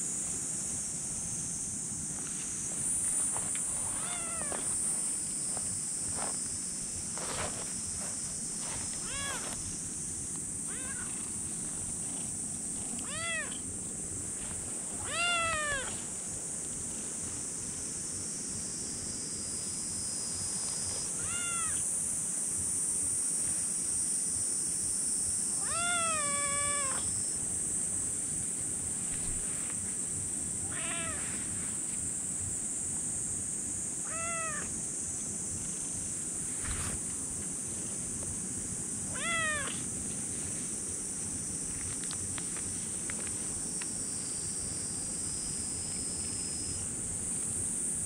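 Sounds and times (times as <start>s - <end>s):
steady high hiss: 0.0s - 48.0s
kitten meowing: 4.0s - 4.6s, 9.0s - 9.4s, 10.7s - 11.2s, 13.0s - 13.6s, 15.0s - 16.0s, 21.2s - 21.8s, 25.6s - 27.1s, 30.6s - 31.3s, 34.1s - 34.7s, 39.1s - 39.8s.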